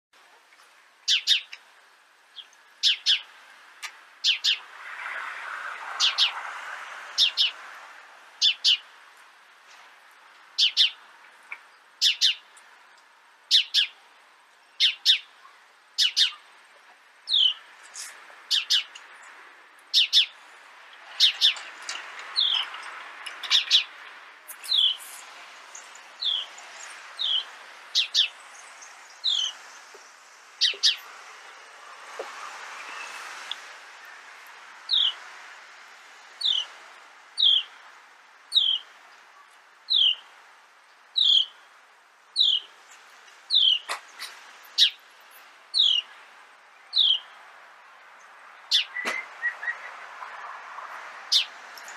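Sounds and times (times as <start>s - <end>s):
sparrows chirping: 1.0s - 1.6s, 2.3s - 5.1s, 5.9s - 6.4s, 7.0s - 7.6s, 8.3s - 8.9s, 10.4s - 12.7s, 13.4s - 31.2s, 32.6s - 35.4s, 36.2s - 37.9s, 38.5s - 40.3s, 41.1s - 41.7s, 42.3s - 47.5s, 48.1s - 50.3s, 51.2s - 51.9s.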